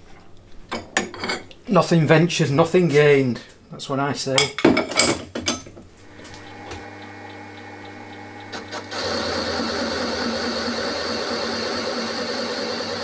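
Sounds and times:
milling machine grinding with whine: 0:06.0 - 0:13.0.

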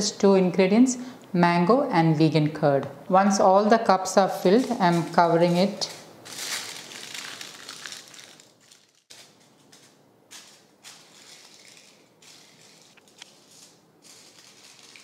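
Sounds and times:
aluminium foil crinkling: 0:04.3 - 0:15.0.

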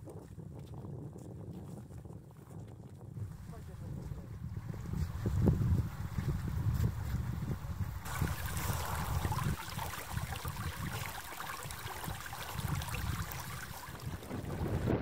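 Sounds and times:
wind rumbling on microphone: 0:00.0 - 0:15.0
stream rushing over ice: 0:08.0 - 0:14.9.

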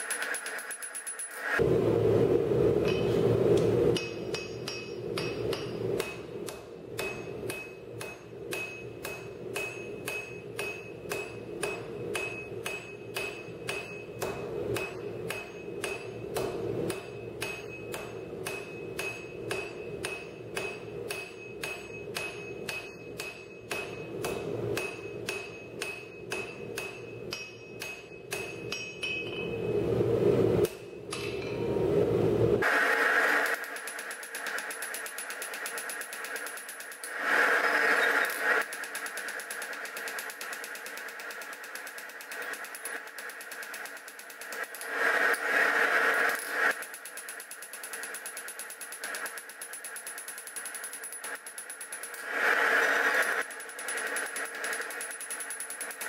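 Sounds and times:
hammer striking steel on anvil: 0:00.0 - 0:01.6, 0:02.8 - 0:29.7, 0:30.6 - 0:31.8, 0:32.6 - 0:56.0
low hum: 0:01.6 - 0:32.6.

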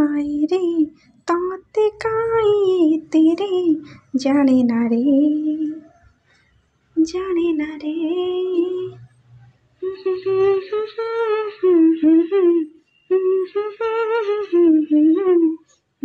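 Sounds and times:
breaths: 0:00.9 - 0:01.3, 0:03.8 - 0:04.2, 0:06.2 - 0:06.7
woman humming: 0:09.8 - 0:15.6.

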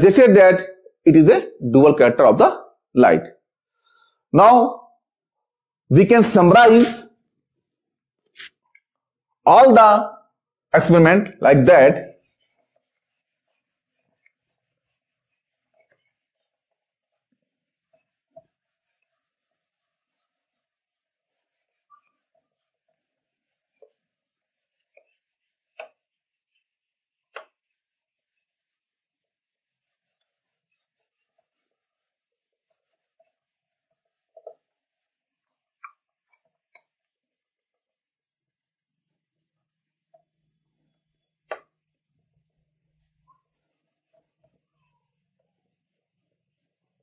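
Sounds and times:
eraser rubbing on whiteboard: 0:08.3 - 0:08.6, 0:11.7 - 0:47.0.

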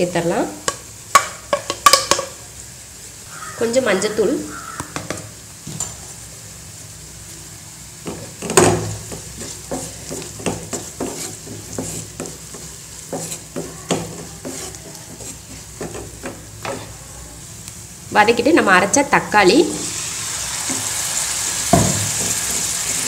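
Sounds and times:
faint sizzle: 0:00.0 - 0:23.0
wooden spatula scraping a pan: 0:08.1 - 0:17.0, 0:22.1 - 0:23.0.

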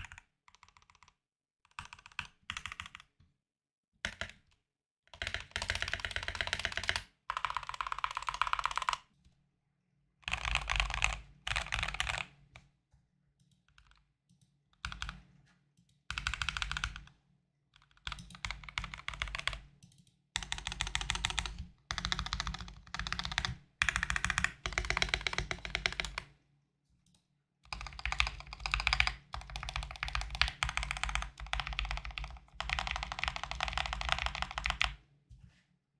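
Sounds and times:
fast typing on mechanical keyboard: 0:00.0 - 0:01.1, 0:01.7 - 0:03.1, 0:05.1 - 0:09.0, 0:10.2 - 0:12.3, 0:14.8 - 0:15.2, 0:16.1 - 0:17.1, 0:17.8 - 0:19.7, 0:20.4 - 0:26.3, 0:27.7 - 0:35.0.

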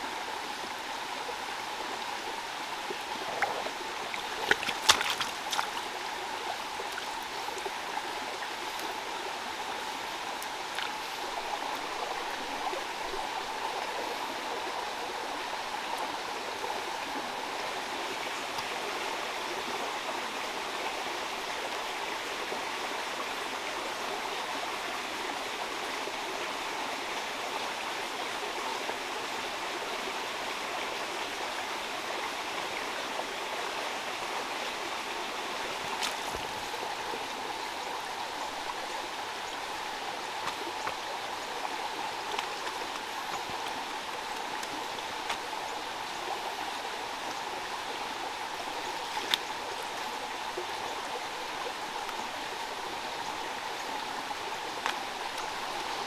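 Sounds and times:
stream water rushing: 0:00.0 - 0:56.0
hands splashing in water: 0:04.3 - 0:05.8.

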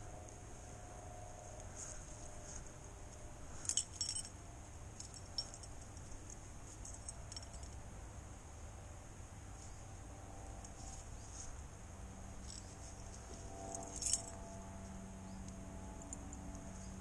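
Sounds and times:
metal hardware clinking: 0:03.5 - 0:04.4, 0:05.0 - 0:07.8, 0:12.4 - 0:14.4.

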